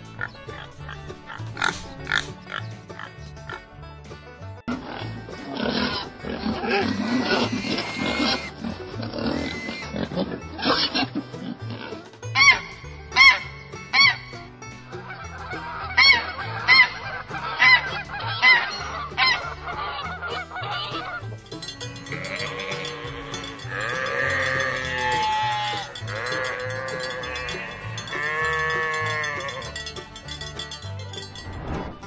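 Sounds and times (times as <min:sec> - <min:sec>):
sheep and goats bleating: 0:00.0 - 0:03.7, 0:04.7 - 0:14.3, 0:17.6 - 0:30.8
goose honking: 0:05.7 - 0:08.6, 0:12.4 - 0:14.2, 0:15.0 - 0:21.2.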